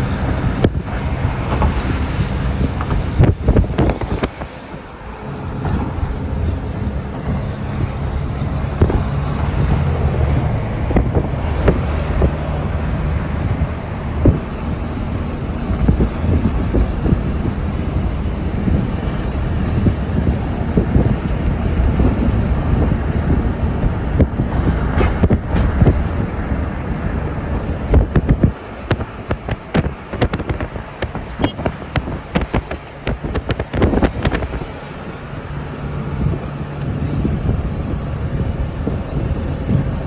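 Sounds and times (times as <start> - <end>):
road noise inside car: 0.0 - 40.0
wind buffeting microphone: 0.0 - 40.0
irregular crackles and knocks: 28.0 - 34.6.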